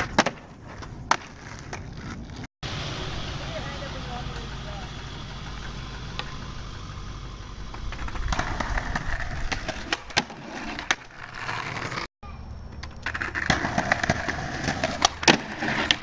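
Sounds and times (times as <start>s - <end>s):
skateboard clacks: 0.0s - 2.2s, 12.7s - 16.0s
skateboard wheels rolling on pavement: 0.0s - 16.0s.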